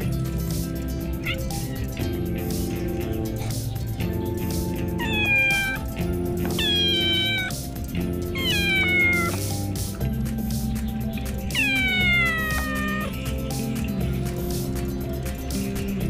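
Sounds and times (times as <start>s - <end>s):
background music: 0.0s - 16.0s
cat meowing: 1.2s - 2.2s, 4.9s - 9.6s, 11.4s - 13.2s.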